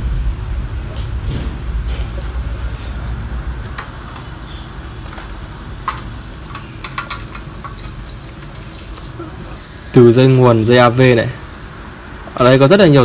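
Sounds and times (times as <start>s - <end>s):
metal connectors clicking: 2.2s - 9.3s.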